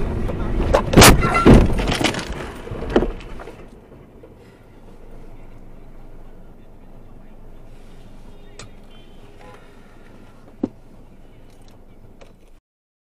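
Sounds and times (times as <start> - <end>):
low steady hum: 0.0 - 12.6
crash thump: 0.8 - 3.4.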